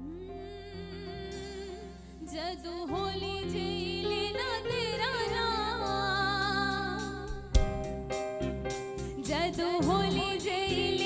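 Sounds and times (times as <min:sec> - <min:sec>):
woman singing: 0:00.0 - 0:07.5, 0:09.2 - 0:11.0
loud thump: 0:07.3 - 0:08.1.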